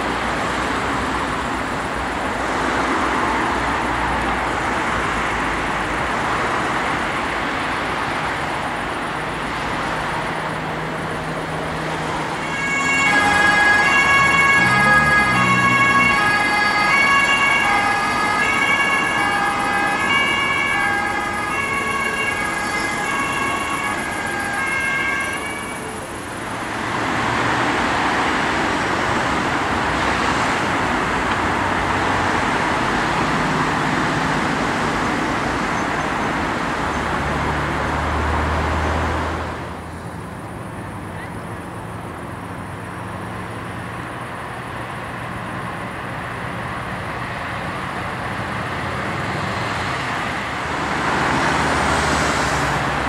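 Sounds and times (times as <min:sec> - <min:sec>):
two-tone emergency siren: 0:00.0 - 0:38.5
road traffic rushing: 0:00.0 - 0:53.0.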